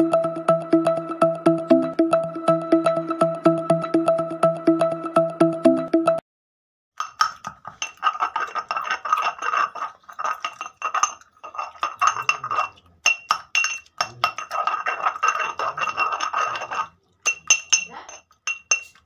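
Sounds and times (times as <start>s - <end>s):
stone pestle clinking in mortar: 7.0s - 19.0s.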